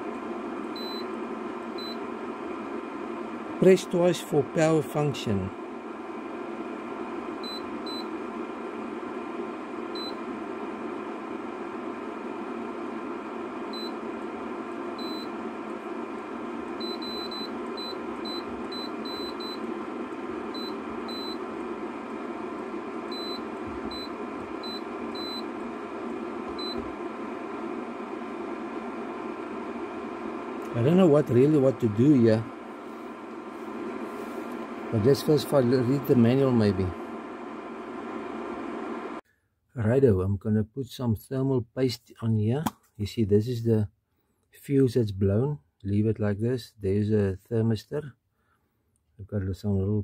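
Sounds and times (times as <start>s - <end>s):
cooling fan whirring: 0.0s - 39.2s.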